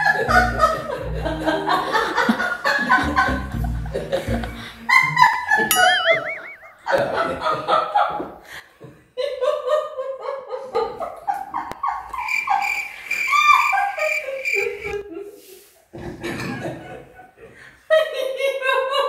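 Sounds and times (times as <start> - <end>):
people laughing: 0.0 - 5.8, 6.9 - 8.4, 9.2 - 15.4, 16.0 - 19.0
brief warbling tone: 5.7 - 6.9.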